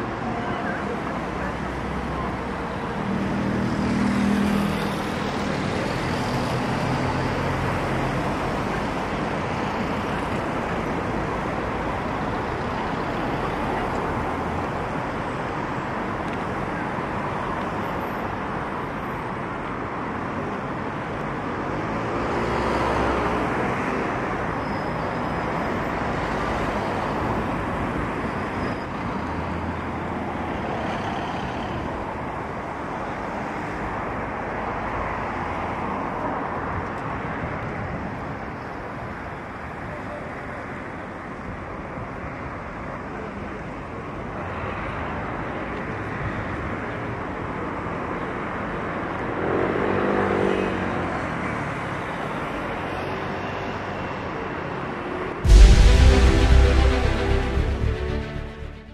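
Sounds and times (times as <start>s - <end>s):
cars driving past: 2.8s - 11.1s, 55.4s - 58.9s.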